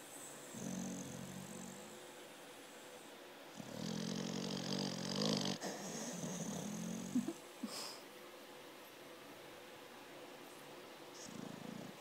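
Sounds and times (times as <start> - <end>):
dog snoring: 0.5 - 2.0, 3.5 - 7.3, 11.2 - 12.0.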